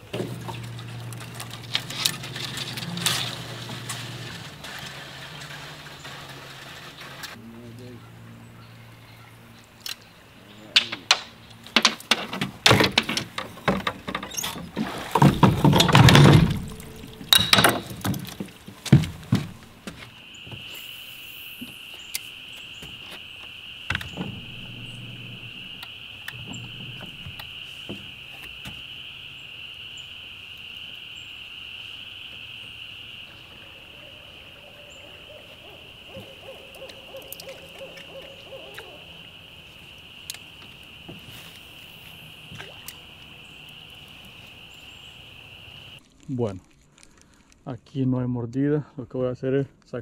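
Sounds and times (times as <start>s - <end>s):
sharp clicks and knocks: 10.8s - 20.0s
high-pitched insect buzzing: 20.2s - 35.0s.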